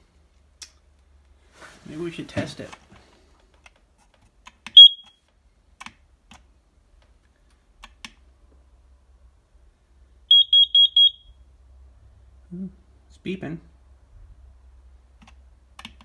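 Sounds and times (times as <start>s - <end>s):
carbon monoxide alarm beeps: 4.7s - 5.2s, 10.3s - 11.4s.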